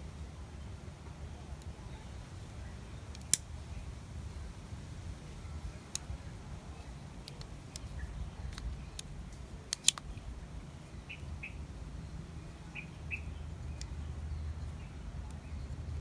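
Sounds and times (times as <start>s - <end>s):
multitool metal clicks: 3.1s - 3.5s, 9.7s - 10.2s
bird chirping: 10.9s - 16.0s.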